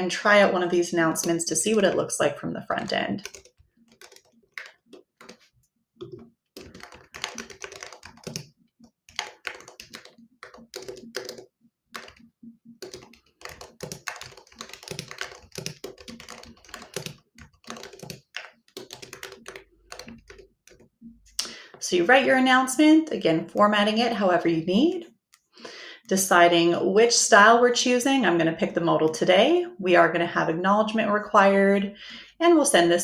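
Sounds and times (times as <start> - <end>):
typing on computer keyboard: 1.0 - 2.2, 2.8 - 21.5.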